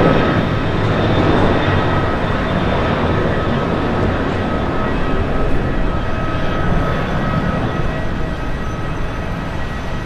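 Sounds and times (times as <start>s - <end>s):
high jet whine: 0.0s - 10.0s
jet engines roaring: 0.0s - 10.0s.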